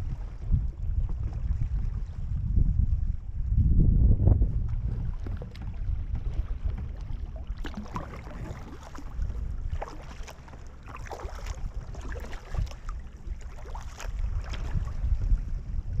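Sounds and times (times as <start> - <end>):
wind rumble on microphone: 0.0 - 16.0
paddle splashing in water: 4.5 - 15.5.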